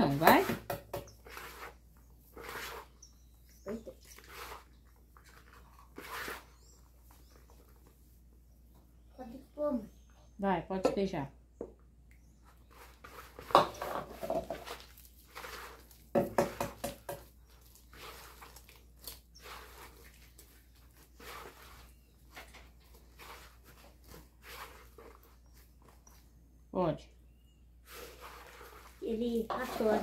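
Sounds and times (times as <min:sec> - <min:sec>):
hand squishing dough: 0:14.6 - 0:16.1, 0:17.0 - 0:26.5, 0:27.8 - 0:30.0.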